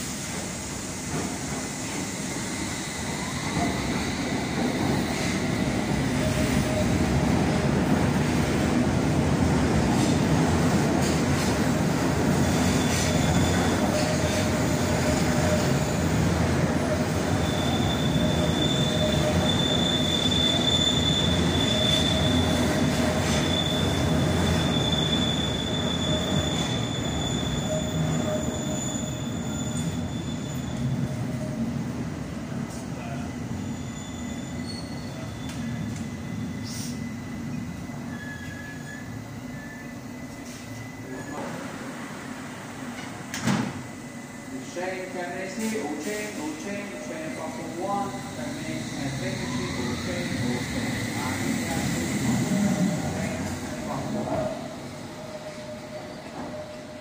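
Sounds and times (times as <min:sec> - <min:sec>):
wheel squeal: 0:12.5 - 0:15.8, 0:17.4 - 0:22.6, 0:23.2 - 0:31.0, 0:33.6 - 0:37.0, 0:38.1 - 0:40.6.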